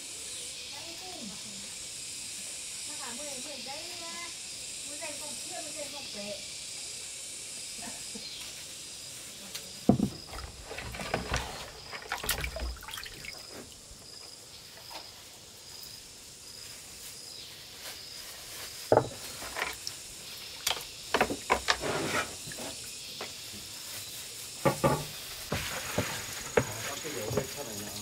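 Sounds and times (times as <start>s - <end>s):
water splashing and scrubbing: 9.9s - 14.0s, 24.6s - 28.0s.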